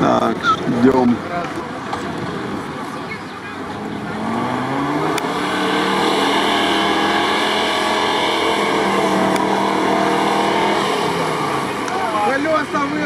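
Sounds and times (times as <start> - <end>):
car engine revving hard: 3.6 - 13.0.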